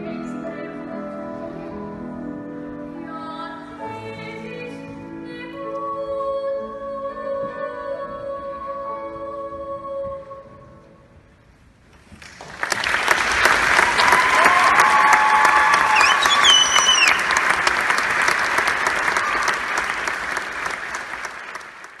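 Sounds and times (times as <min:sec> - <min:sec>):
audience applauding: 0:12.2 - 0:22.0.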